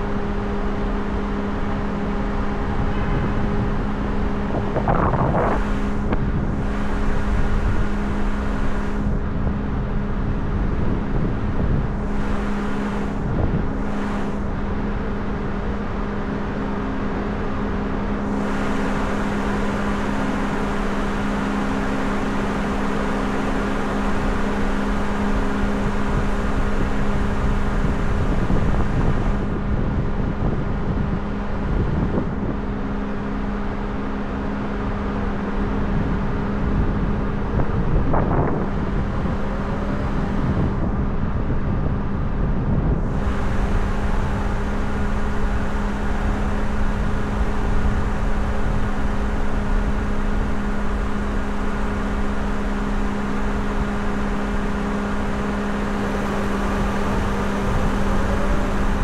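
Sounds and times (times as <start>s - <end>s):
car road and engine rumble: 0.0s - 59.0s
constant low hum: 0.0s - 59.0s.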